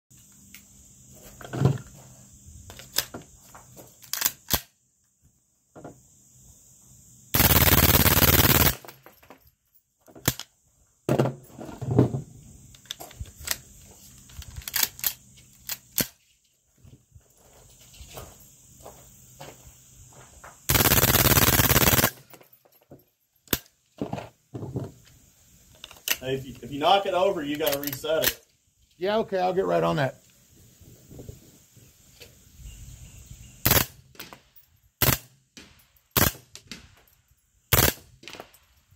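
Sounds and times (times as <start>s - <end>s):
machine gun burst: 7.4s - 8.9s, 20.7s - 22.2s, 33.7s - 33.9s, 37.7s - 38.0s.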